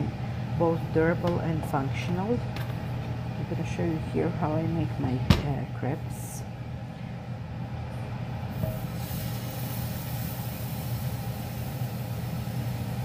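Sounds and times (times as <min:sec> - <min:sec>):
steady low hum: 0:00.0 - 0:13.0
batter sizzling on a hot pan: 0:08.6 - 0:13.0.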